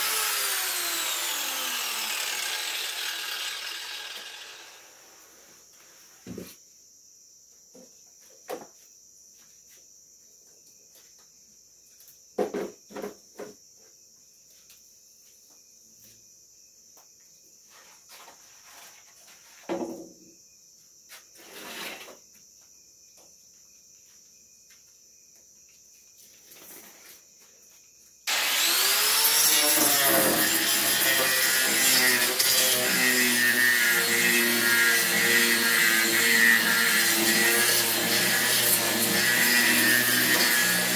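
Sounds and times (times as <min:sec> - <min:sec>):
angle grinder whining: 0:00.0 - 0:05.3, 0:28.3 - 0:40.9.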